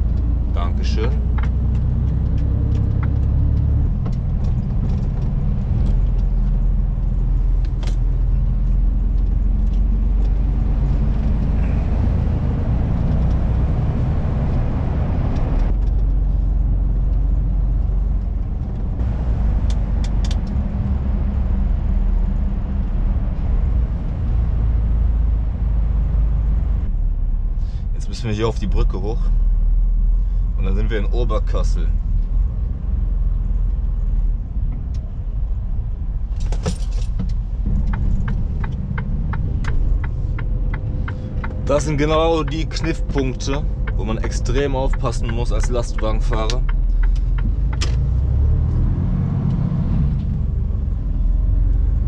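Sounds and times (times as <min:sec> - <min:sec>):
truck engine rumbling: 0:00.0 - 0:52.0
sharp clicks: 0:37.2 - 0:48.1.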